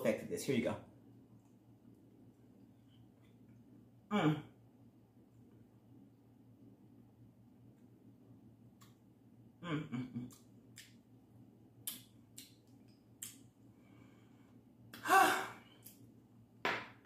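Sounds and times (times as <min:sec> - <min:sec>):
woman humming mm: 0:04.1 - 0:04.6, 0:09.6 - 0:10.4
woman sighing: 0:04.1 - 0:04.6, 0:15.0 - 0:15.7.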